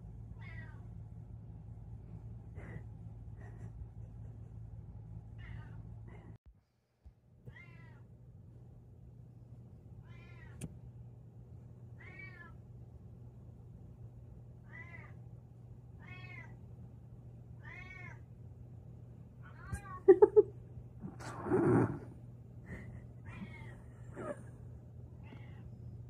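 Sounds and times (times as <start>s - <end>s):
low hum: 0.0s - 14.6s
cat meowing: 10.0s - 10.6s, 14.7s - 15.2s, 16.0s - 16.5s.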